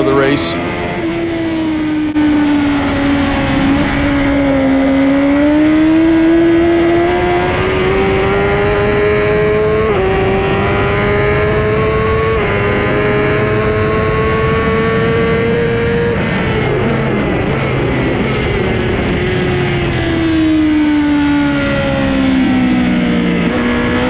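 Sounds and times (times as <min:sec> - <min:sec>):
motorcycle engine accelerating: 0:00.6 - 0:17.3.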